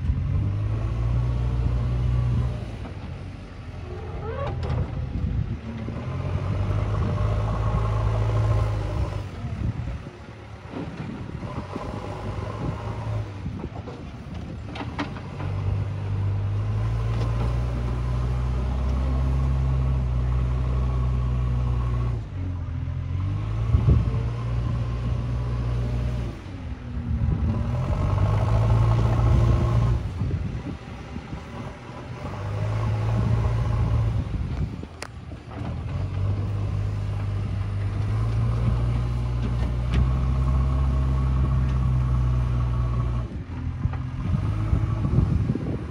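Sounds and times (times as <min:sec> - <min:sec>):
diesel engine revving: 0:00.0 - 0:45.9.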